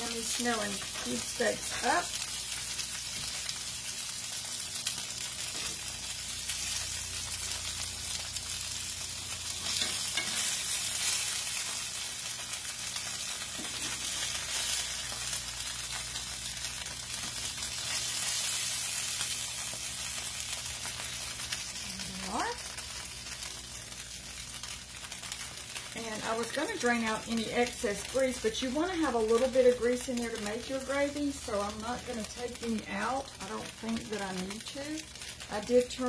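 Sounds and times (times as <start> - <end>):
steaks sizzling in grease: 0.0 - 36.0.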